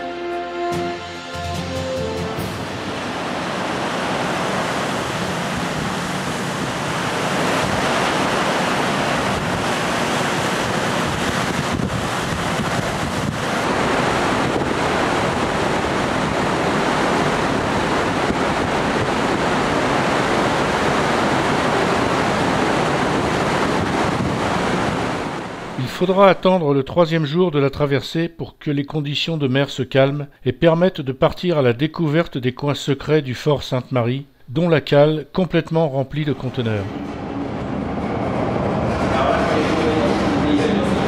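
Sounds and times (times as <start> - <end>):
rough sea breaking: 2.4 - 26.0
wind buffeting microphone: 3.1 - 25.8, 37.0 - 41.0.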